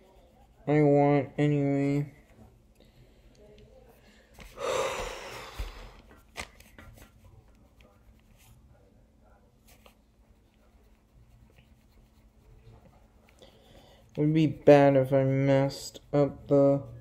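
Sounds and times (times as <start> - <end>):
pen scratching on paper: 0.0 - 1.0, 9.6 - 17.0.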